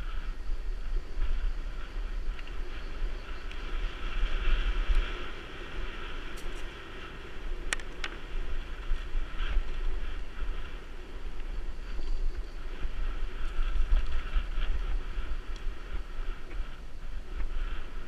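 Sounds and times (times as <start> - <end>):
bike rattle and tyre noise: 0.0 - 18.0
wind buffeting microphone: 0.0 - 18.0.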